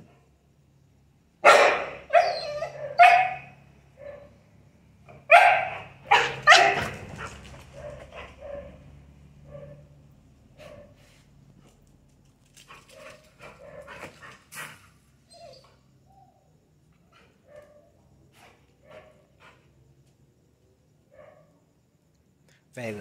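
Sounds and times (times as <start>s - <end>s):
dog barking: 1.4s - 4.4s, 5.1s - 9.9s, 10.6s - 11.1s, 12.9s - 14.7s, 17.4s - 19.3s, 21.1s - 21.6s.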